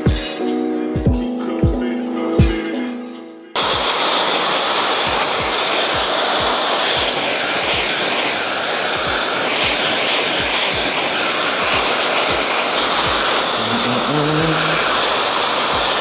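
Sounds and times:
hair dryer running: 3.6s - 16.0s.

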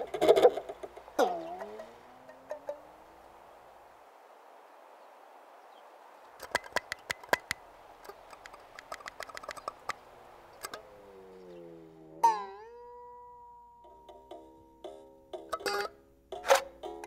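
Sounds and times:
soft hiss: 0.0s - 17.0s
sharp irregular clicks: 6.4s - 10.0s.

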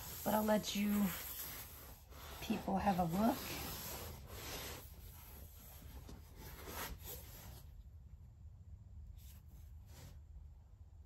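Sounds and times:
cardboard box rubbing and scraping: 0.0s - 7.8s.

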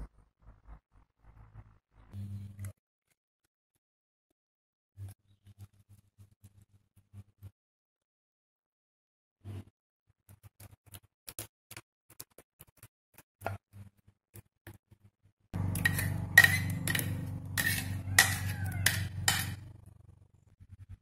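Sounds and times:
spoon knocking and scraping jar: 15.6s - 19.7s.

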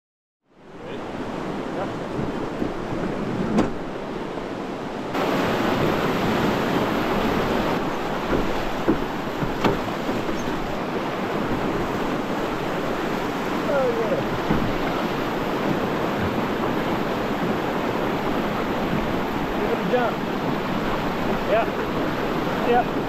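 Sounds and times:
whitewater rapids rushing: 0.7s - 23.0s
wind on microphone: 0.8s - 23.0s
sharp knocks: 7.8s - 10.7s.

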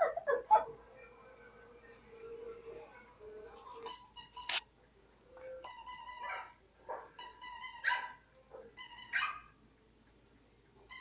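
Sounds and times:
recorded dog barks: 7.8s - 9.6s.

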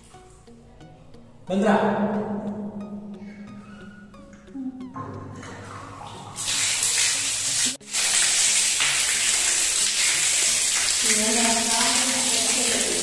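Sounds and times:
water gushing from float valve: 5.4s - 13.0s.

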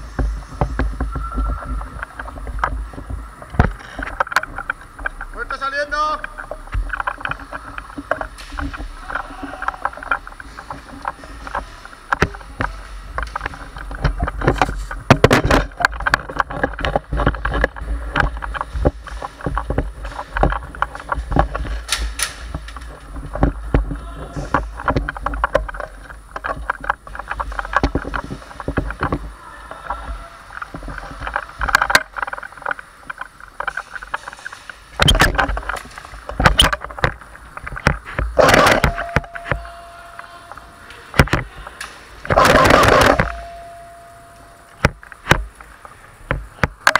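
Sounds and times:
camera rubbing and rumbling: 0.0s - 46.9s
footsteps: 0.0s - 46.9s
sharp knocks and clicks: 30.6s - 39.7s, 44.7s - 45.6s.

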